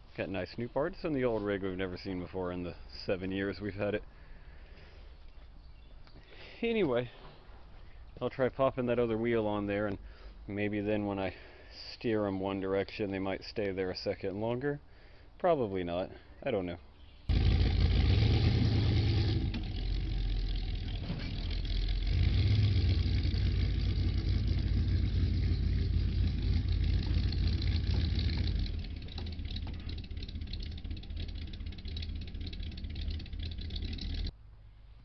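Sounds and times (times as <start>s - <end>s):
vehicle engine rumbling: 17.3s - 35.0s.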